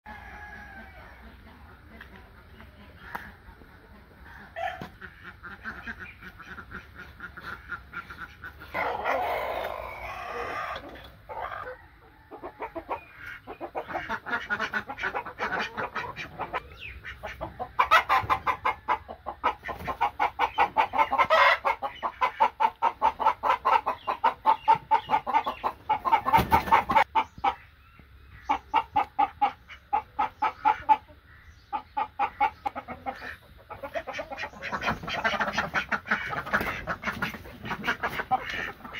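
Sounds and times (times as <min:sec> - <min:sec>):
rooster crowing: 0:00.1 - 0:01.2
chickens clucking: 0:00.1 - 0:38.9.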